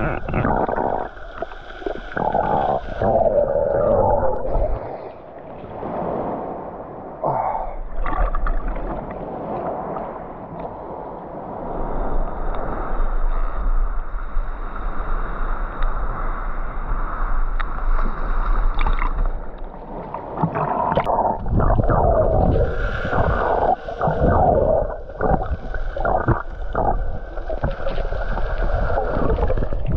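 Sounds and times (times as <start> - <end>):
underwater churning: 0.0 - 12.0, 17.7 - 29.9
water sloshing and gurgling: 0.0 - 29.9.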